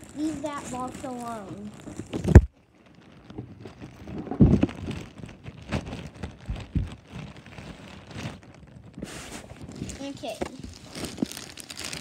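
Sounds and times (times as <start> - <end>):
handling rustling: 0.0 - 12.0
muffled bumps: 3.3 - 11.4.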